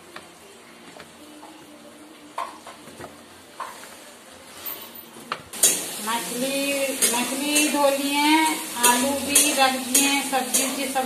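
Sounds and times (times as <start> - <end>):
food frying in a pan: 5.6 - 11.0.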